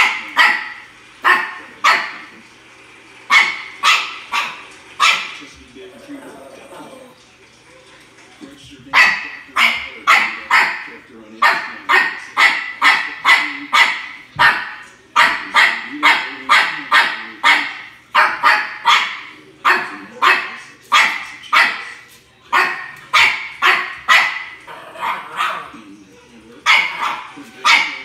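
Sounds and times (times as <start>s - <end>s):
small dog barking high-pitched: 0.0s - 2.2s, 3.3s - 5.4s, 9.0s - 21.9s, 22.5s - 25.7s, 26.6s - 28.0s.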